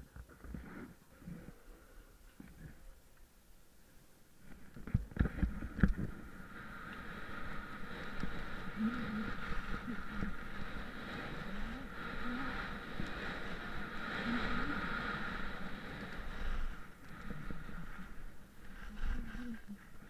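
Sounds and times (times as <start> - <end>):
wind noise on microphone: 4.4 - 20.0
skis scraping on snow: 4.5 - 20.0.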